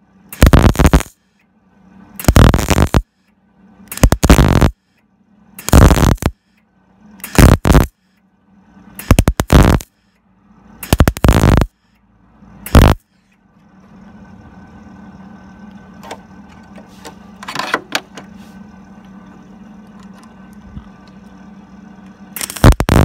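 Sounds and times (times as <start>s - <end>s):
welder humming: 0.0s - 3.2s, 3.8s - 8.1s, 8.7s - 12.0s, 12.6s - 13.2s, 18.1s - 23.0s
welding arc crackle: 0.3s - 1.2s, 2.2s - 3.0s, 3.9s - 4.8s, 5.6s - 6.4s, 7.2s - 7.9s, 9.0s - 9.9s, 10.8s - 11.7s, 12.7s - 13.0s, 22.4s - 23.0s.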